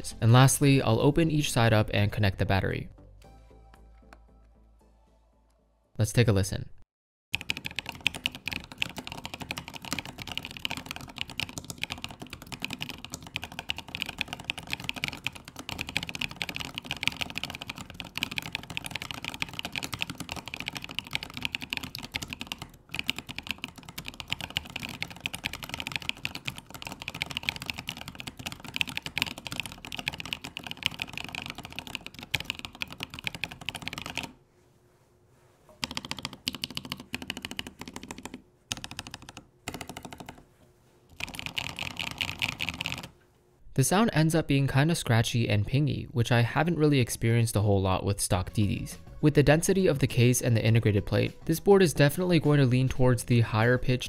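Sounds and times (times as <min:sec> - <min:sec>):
mechanical keyboard typing: 0:07.4 - 0:34.4, 0:35.8 - 0:40.4, 0:41.2 - 0:43.1.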